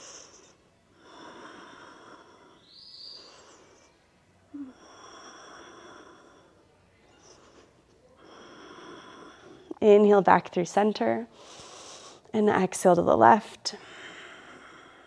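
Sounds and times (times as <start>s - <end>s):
woman breathing deeply: 0.0s - 9.8s, 11.3s - 12.3s, 13.8s - 15.0s.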